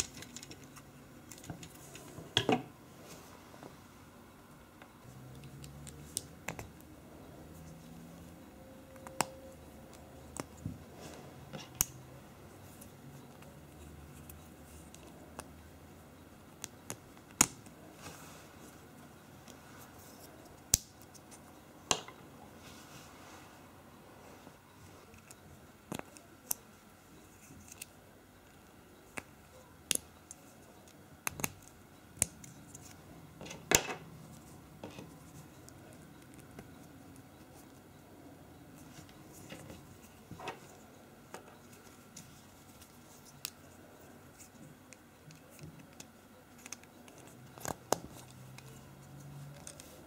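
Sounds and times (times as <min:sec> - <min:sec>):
plastic parts clicking together: 0:00.0 - 0:02.6.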